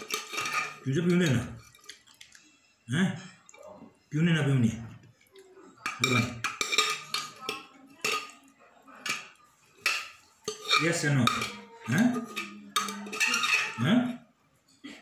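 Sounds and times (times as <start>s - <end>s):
metal spoon clinking on steel plates: 0.0s - 2.3s, 5.8s - 14.2s.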